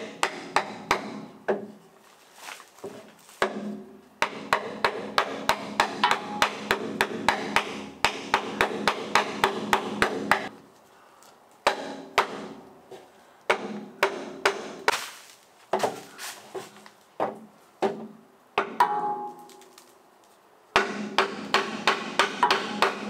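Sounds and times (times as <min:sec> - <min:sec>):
hammer striking wooden block: 0:00.1 - 0:01.7, 0:03.4 - 0:10.5, 0:11.6 - 0:12.6, 0:13.5 - 0:15.0, 0:17.2 - 0:19.4, 0:20.8 - 0:23.0.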